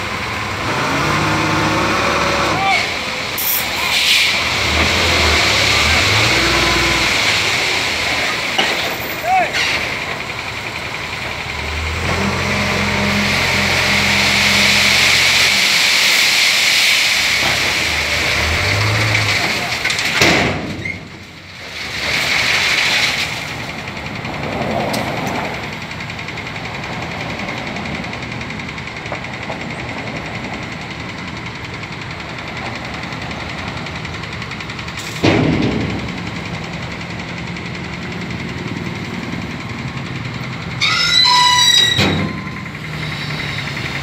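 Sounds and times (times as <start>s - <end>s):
diesel truck engine rumble: 0.0s - 44.0s
rushing hiss: 3.4s - 5.1s
rushing hiss of unloading rock: 3.4s - 8.1s, 13.7s - 19.8s
diesel truck engine knocking: 9.8s - 12.9s, 23.6s - 40.8s.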